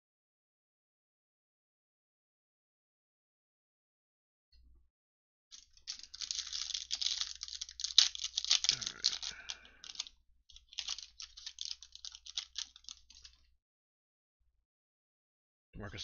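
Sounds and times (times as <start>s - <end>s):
cards rustling: 5.6s - 13.4s
foil wrapper crinkling and tearing: 5.6s - 13.4s.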